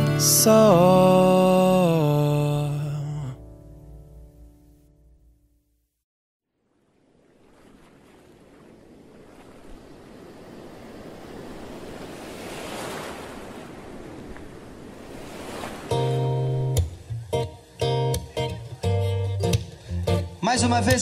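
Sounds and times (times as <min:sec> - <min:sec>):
ocean waves washing: 0:06.6 - 0:17.8.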